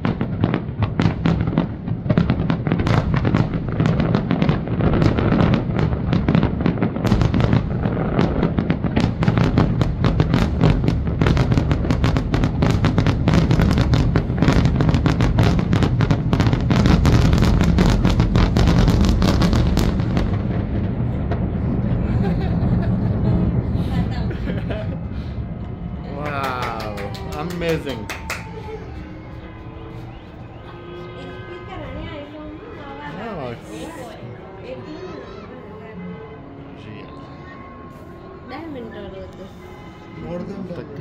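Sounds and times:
fireworks bangs and crackles: 0:00.0 - 0:35.0, 0:38.8 - 0:41.0
low rumble: 0:15.6 - 0:26.4.

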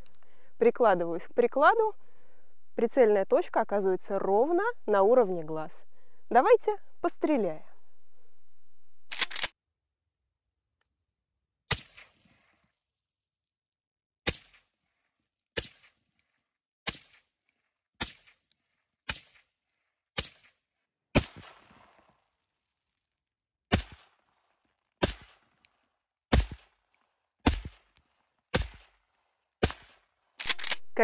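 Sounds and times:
rifle shots with echo: 0:25.0 - 0:25.4, 0:29.6 - 0:30.8.

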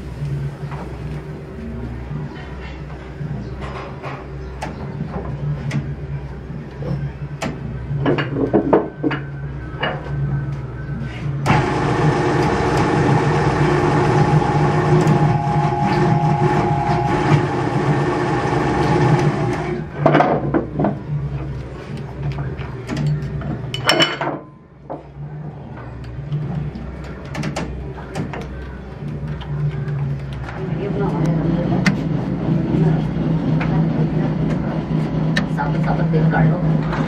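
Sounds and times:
hydraulic press motor whining: 0:11.4 - 0:19.9.

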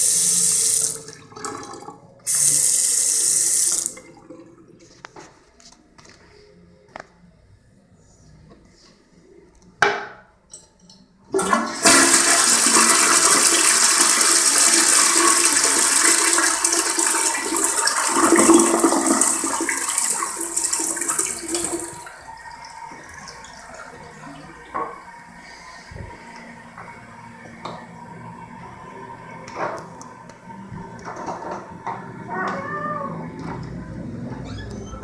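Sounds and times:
toilet water rushing: 0:00.0 - 0:04.7, 0:11.3 - 0:25.4
toilet flush knock: 0:11.4 - 0:22.1.

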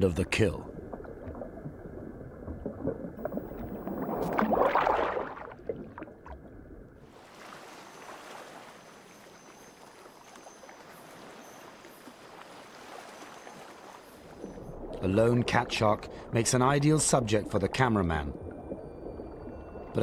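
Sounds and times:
watery rushing: 0:02.4 - 0:06.4.

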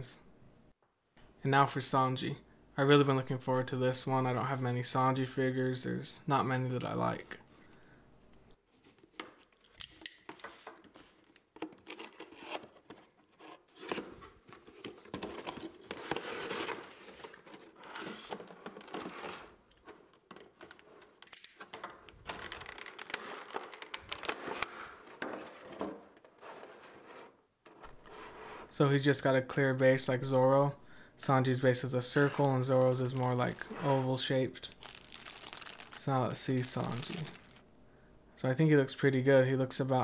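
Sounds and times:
plastic packaging crinkling: 0:08.8 - 0:25.6, 0:32.0 - 0:37.6.

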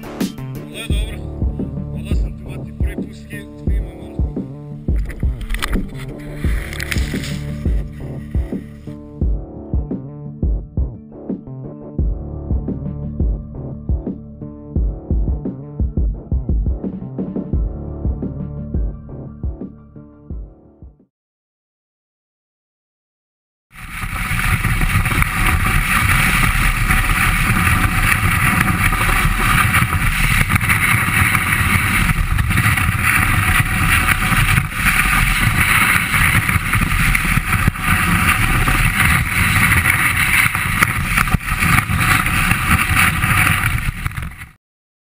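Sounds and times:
snowboard sliding on snow: 0:05.4 - 0:08.9, 0:23.8 - 0:44.6
wind buffeting microphone: 0:23.8 - 0:44.6.

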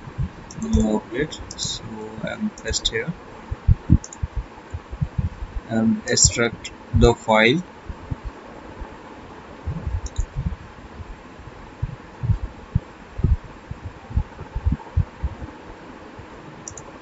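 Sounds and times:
steady hiss: 0:00.0 - 0:17.0
muffled thumps on microphone: 0:03.6 - 0:05.7, 0:09.7 - 0:10.6
mouse click: 0:04.0 - 0:04.3, 0:10.0 - 0:10.3, 0:16.6 - 0:16.8.

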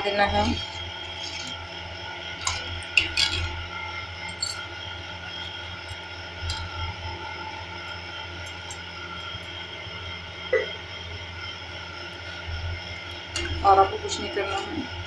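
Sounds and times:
steady low hum: 0:00.0 - 0:15.0
ladle clinking in metal bowl: 0:02.4 - 0:03.6.

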